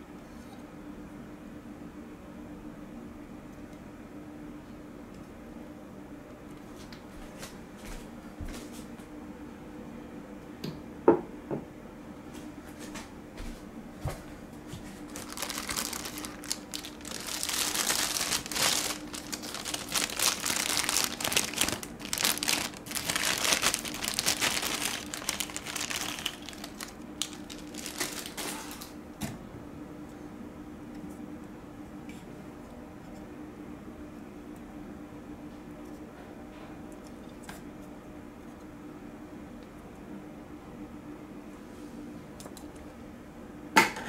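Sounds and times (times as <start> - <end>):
plastic bag crinkling: 15.0 - 29.0.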